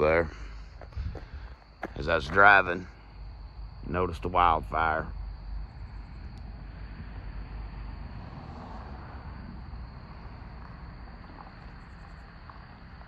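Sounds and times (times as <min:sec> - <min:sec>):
low rumble and hiss: 0:00.0 - 0:13.0.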